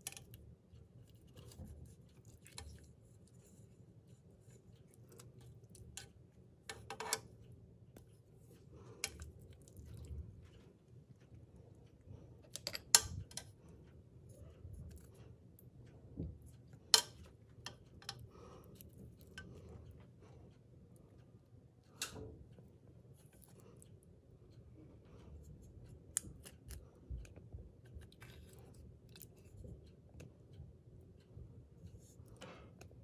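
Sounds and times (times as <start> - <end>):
tongs clacking on pot and dish: 0.0 - 0.4, 5.0 - 7.4, 12.5 - 13.5, 16.9 - 18.5.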